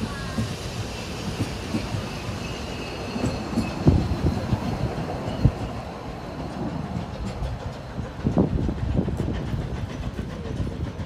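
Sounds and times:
train wheels knocking over rail joints: 0:00.0 - 0:02.4, 0:06.5 - 0:11.0
high wheel squeal: 0:00.0 - 0:06.6.

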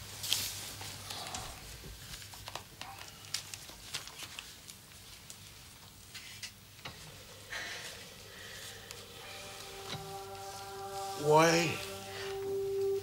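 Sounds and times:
soft rustle: 0:00.0 - 0:13.0
low steady hum: 0:06.7 - 0:13.0
held musical note: 0:06.9 - 0:13.0.

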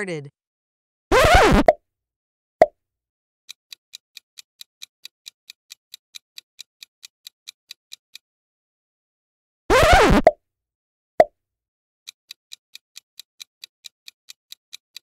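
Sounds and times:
countdown clock ticking: 0:12.3 - 0:15.0.

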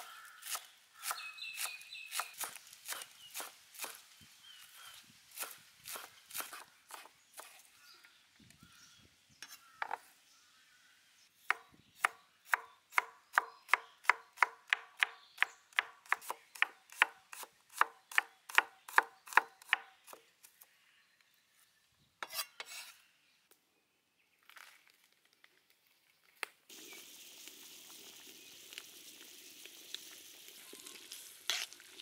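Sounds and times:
knife chopping on wooden board: 0:15.8 - 0:20.2.

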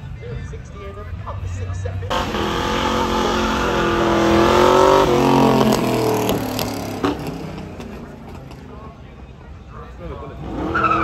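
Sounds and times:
car engine accelerating past: 0:02.1 - 0:08.7.

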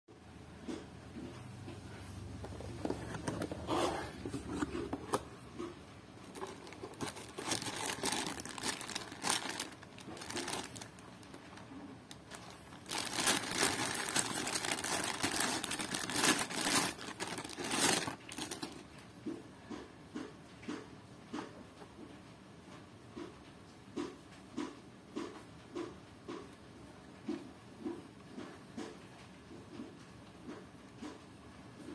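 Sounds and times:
cardboard box handling: 0:02.4 - 0:05.3, 0:06.3 - 0:10.9, 0:12.3 - 0:18.8
plastic bag crinkling: 0:06.2 - 0:19.0.

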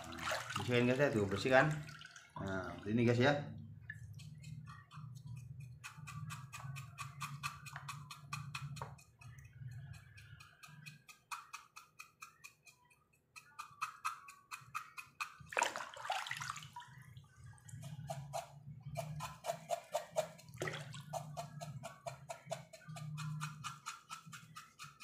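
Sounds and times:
water splashing in a bucket: 0:00.0 - 0:03.2, 0:15.5 - 0:17.4, 0:20.4 - 0:21.1.

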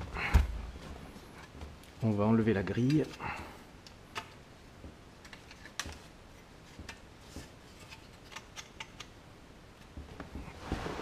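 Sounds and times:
metal sleeve clicks and taps: 0:06.7 - 0:09.1.

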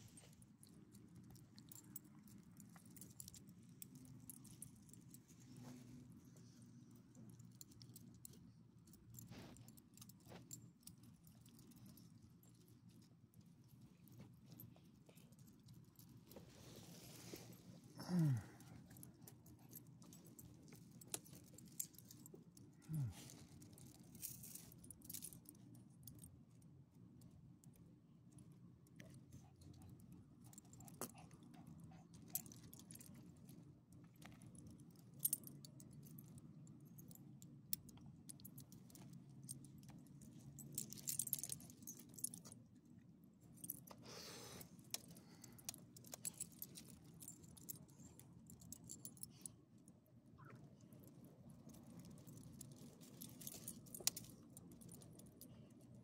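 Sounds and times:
dog collar tags jingling: 0:39.5 - 0:42.5, 0:45.0 - 0:49.5, 0:51.7 - 0:55.5.

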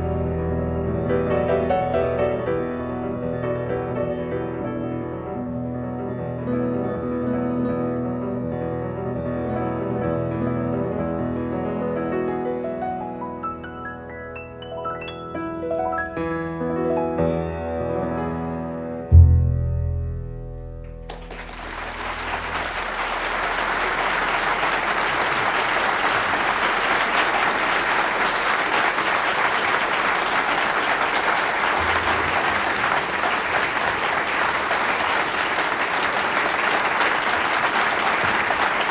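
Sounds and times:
piano notes: 0:00.0 - 0:25.2
bass notes: 0:19.0 - 0:24.6
audience applauding: 0:21.1 - 0:38.9.

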